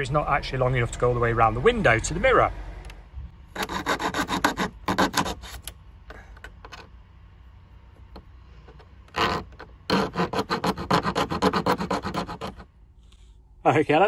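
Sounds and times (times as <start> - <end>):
hacksaw cutting plastic: 3.5 - 5.8, 9.0 - 12.7.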